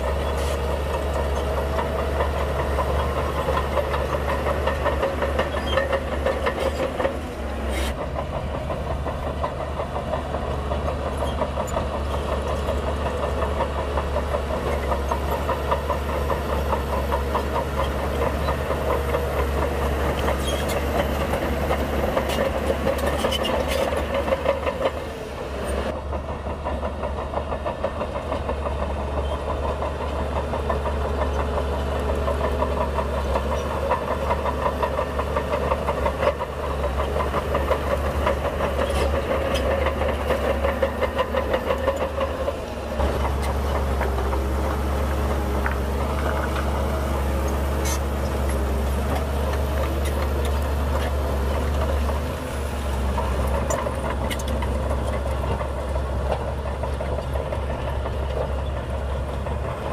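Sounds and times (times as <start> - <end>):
bulldozer diesel engine clattering: 0.0 - 59.9.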